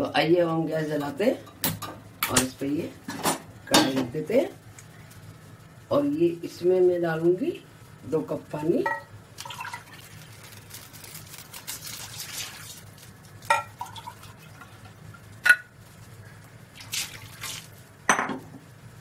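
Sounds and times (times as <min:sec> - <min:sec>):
water pouring into metal pan: 0:09.4 - 0:10.3, 0:11.7 - 0:12.9, 0:13.6 - 0:15.2, 0:16.7 - 0:17.8.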